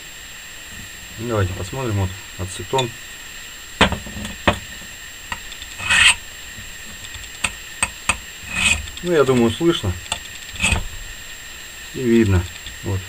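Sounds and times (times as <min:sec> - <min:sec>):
knife scraping glass jar: 0:05.7 - 0:06.2, 0:08.1 - 0:10.9.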